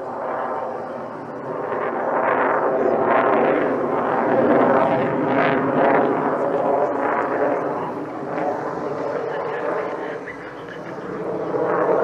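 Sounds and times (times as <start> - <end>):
fighter jet roar overhead: 0.0 - 12.0.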